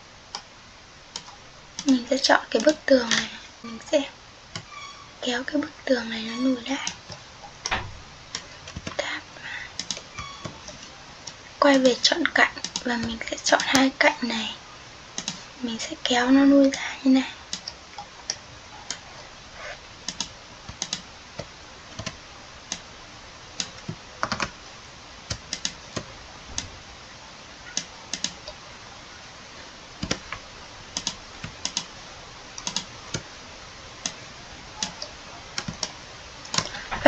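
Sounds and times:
faint steady hiss: 0.0s - 37.0s
keyboard and mouse clicks: 4.5s - 4.7s, 9.8s - 11.4s, 12.6s - 13.8s, 15.2s - 15.4s, 20.0s - 22.9s, 23.6s - 24.5s, 25.3s - 26.7s, 27.8s - 28.6s, 30.0s - 30.4s, 31.0s - 31.9s, 32.6s - 33.3s, 34.8s - 37.0s.

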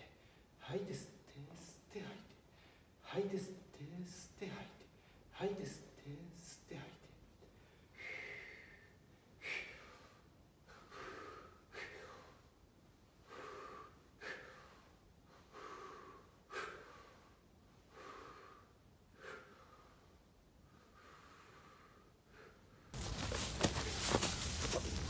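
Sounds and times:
man breathing rhythmically: 2.5s - 3.0s, 7.5s - 23.0s.

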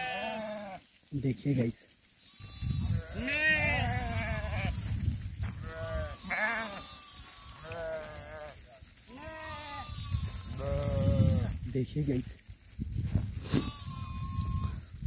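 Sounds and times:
sheep bleating: 0.0s - 0.8s, 2.2s - 4.8s, 5.6s - 11.5s, 13.4s - 14.8s.

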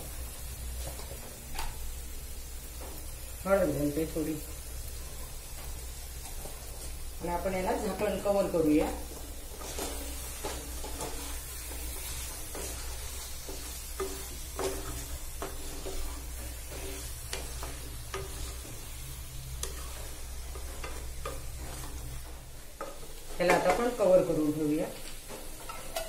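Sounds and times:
food sizzling in a pan: 0.0s - 26.0s
spatula scraping a pan: 8.7s - 24.0s.

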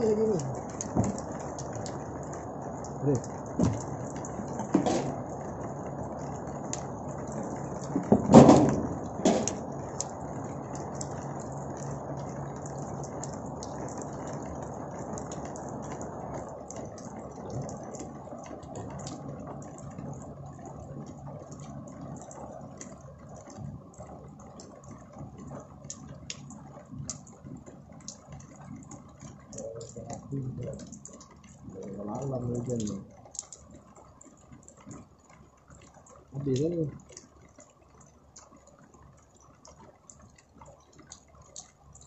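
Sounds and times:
heavy rain: 0.0s - 42.0s
raindrops ticking: 0.0s - 42.0s
wind: 0.0s - 42.0s
loud thumps: 3.6s - 3.8s, 4.7s - 5.2s, 8.0s - 9.6s.

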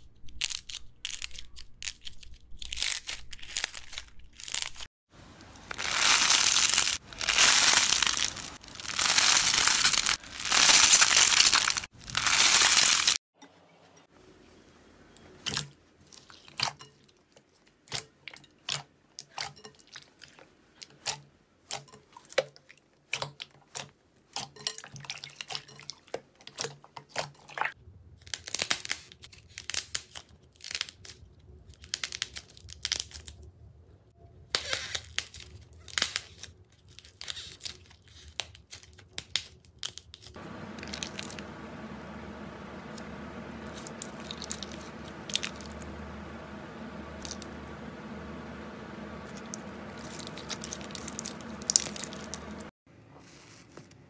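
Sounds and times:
slime crackling and squishing: 5.6s - 13.2s, 34.7s - 52.7s
steady hum: 40.4s - 52.7s.

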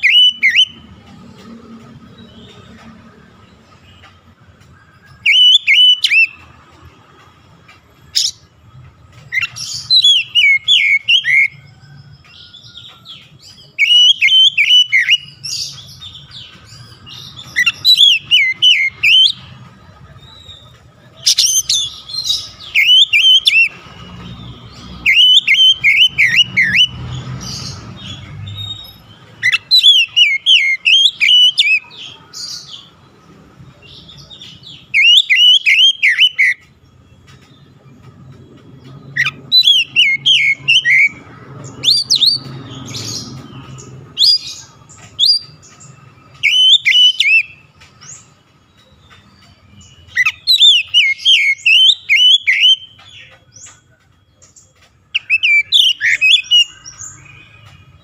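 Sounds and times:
bird singing whistled phrases: 0.0s - 0.8s, 5.0s - 6.4s, 9.4s - 11.6s, 13.6s - 15.8s, 17.3s - 19.4s, 21.2s - 23.8s, 24.8s - 27.0s, 28.1s - 32.0s, 34.3s - 36.6s, 39.2s - 41.2s, 46.3s - 47.6s, 49.1s - 53.3s, 55.1s - 57.7s.

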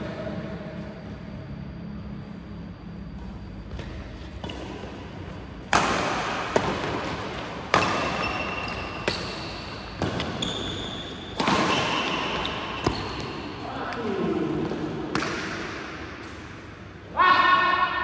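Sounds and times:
racket hitting shuttlecock: 4.4s - 16.7s.

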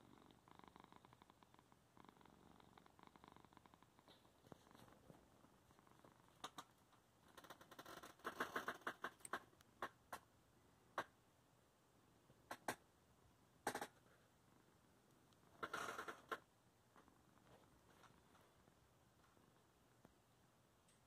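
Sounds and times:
cat purring: 0.0s - 10.3s, 13.6s - 20.1s.

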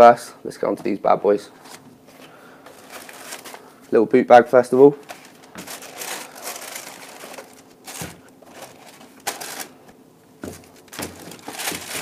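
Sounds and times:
tissue paper rustling: 2.7s - 3.7s, 5.0s - 12.0s
cardboard being handled: 5.0s - 12.0s.

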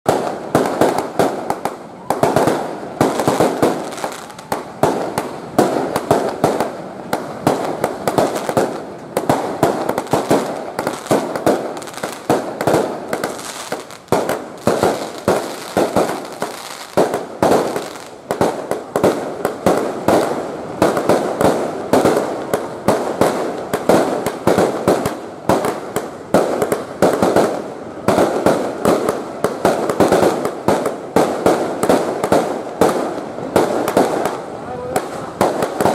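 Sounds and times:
fireworks bangs and crackling: 0.0s - 35.9s.

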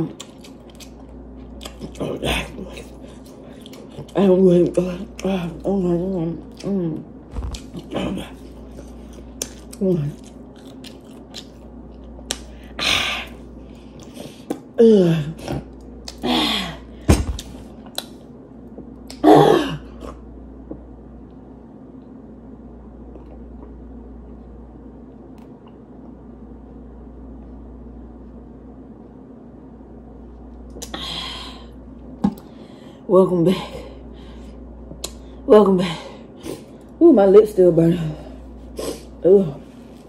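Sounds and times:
low room hum: 0.0s - 40.0s
woman coughing: 19.2s - 19.9s.

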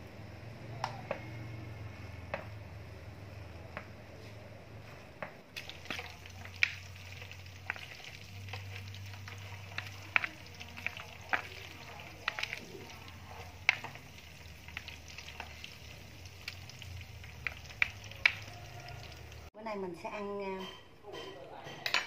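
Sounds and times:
chopsticks stirring noodles: 5.6s - 19.5s.

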